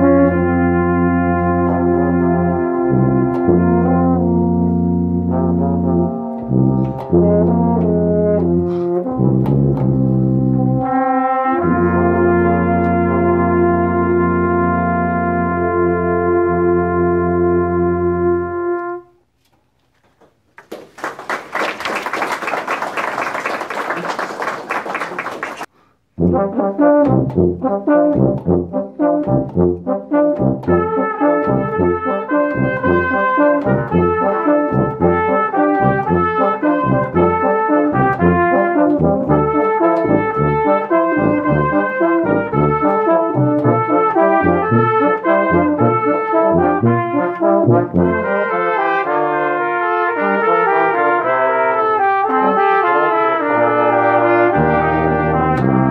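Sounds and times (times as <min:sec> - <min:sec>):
brass ensemble playing: 0:00.0 - 0:19.4, 0:21.2 - 0:55.9
audience applause: 0:20.6 - 0:25.7.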